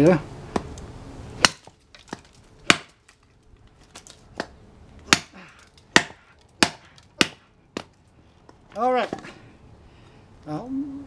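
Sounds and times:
knife chopping wood: 0:01.4 - 0:03.2, 0:03.9 - 0:08.0.

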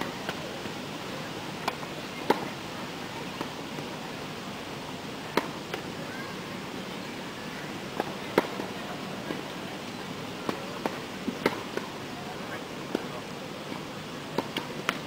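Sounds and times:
tennis ball bouncing on court: 0:01.6 - 0:02.5, 0:05.3 - 0:05.8, 0:07.9 - 0:09.5, 0:10.4 - 0:11.9, 0:14.3 - 0:15.0
tennis ball struck by racket: 0:01.6 - 0:02.5, 0:05.3 - 0:05.8, 0:07.9 - 0:09.4, 0:10.4 - 0:11.9, 0:14.3 - 0:15.0.

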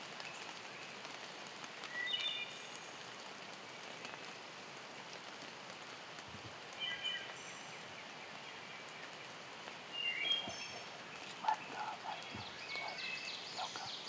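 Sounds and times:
rain falling on leaves: 0:00.0 - 0:14.0
small birds chirping: 0:01.8 - 0:04.4, 0:06.7 - 0:14.0.

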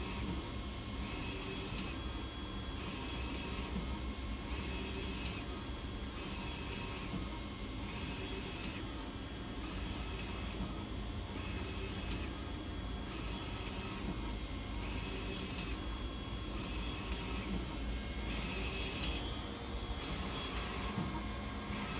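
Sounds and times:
printer carriage whirring: 0:00.0 - 0:21.9.

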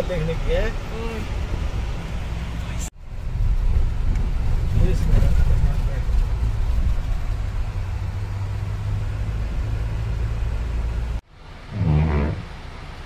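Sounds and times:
vehicle engine and road noise: 0:00.0 - 0:13.0
short pitched sound: 0:11.7 - 0:12.6.

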